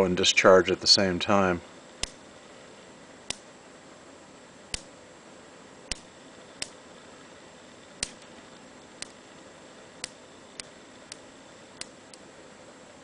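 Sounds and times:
faint steady hiss: 0.0s - 13.0s
static discharge snaps: 1.9s - 2.5s, 3.2s - 3.5s, 4.7s - 5.0s, 5.8s - 6.9s, 7.8s - 12.3s.

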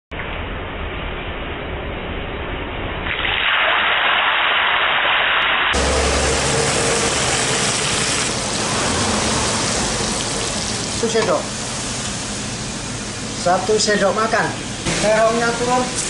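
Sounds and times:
fish sizzling in a frying pan: 5.0s - 12.4s.

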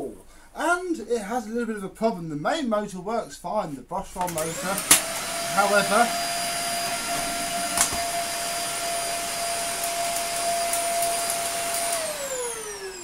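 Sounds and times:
vacuum cleaner motor whine: 4.3s - 13.0s
motor spinning down: 4.5s - 13.0s.

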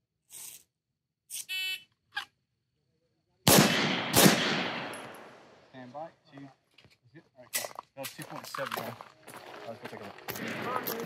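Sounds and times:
handgun shots with echo: 3.5s - 5.3s.

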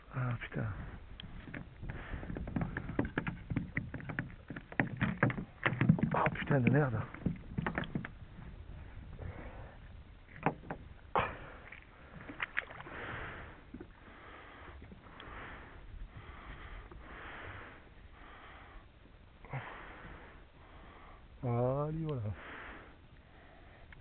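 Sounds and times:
water swishing against hull: 0.0s - 21.3s
fishing tackle knocking: 1.2s - 8.2s, 10.4s - 10.8s.

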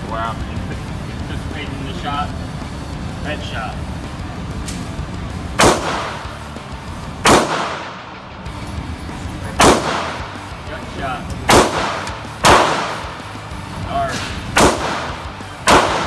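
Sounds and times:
pistol shots with reverberant tail: 5.6s - 6.4s, 7.2s - 8.2s, 9.6s - 10.4s, 11.5s - 13.2s, 14.1s - 16.0s.

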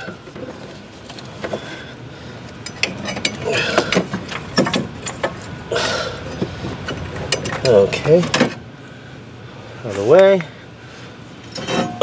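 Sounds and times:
metal clinking and rattling: 2.5s - 5.4s, 11.4s - 12.0s.

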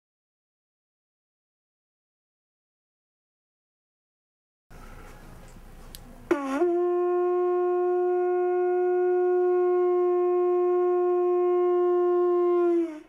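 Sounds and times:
conch shell trumpet note: 6.3s - 13.0s.

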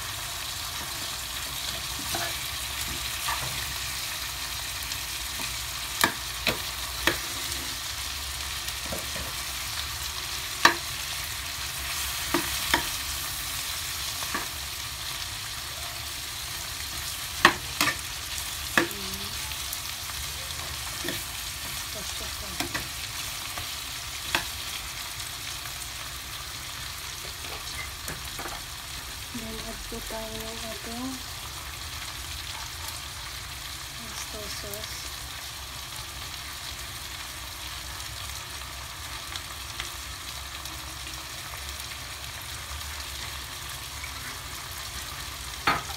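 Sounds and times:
shrimp sizzling in a frying pan: 0.0s - 45.9s
metal spoon scraping a pan: 1.7s - 2.5s, 6.4s - 7.9s.

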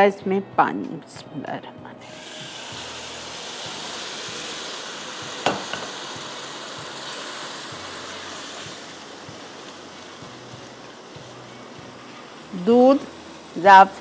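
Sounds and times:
water sizzling in hot wok: 2.0s - 14.0s
sharp knock: 5.5s - 6.0s.

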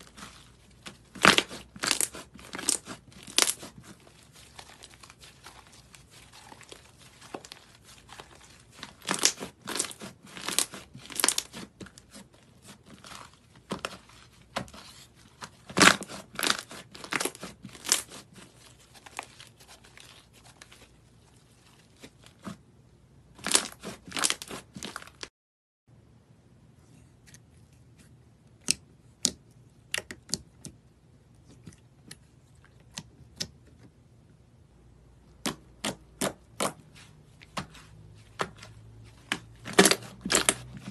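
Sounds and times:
slime crackling and popping: 0.0s - 14.3s, 15.4s - 20.5s, 23.4s - 25.2s, 39.3s - 40.8s.

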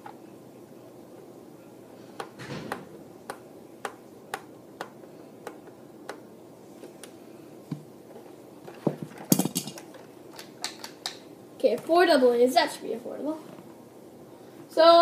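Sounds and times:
plastic knocks and rattles: 8.7s - 11.0s.

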